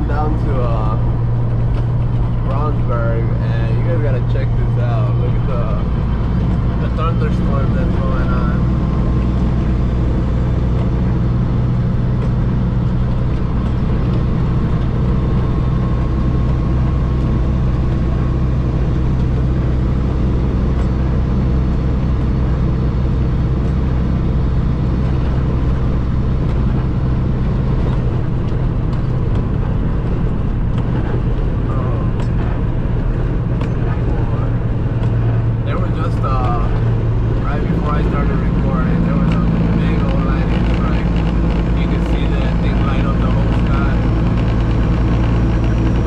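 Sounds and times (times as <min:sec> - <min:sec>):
road noise: 0:00.0 - 0:46.0
truck engine droning: 0:00.0 - 0:46.0.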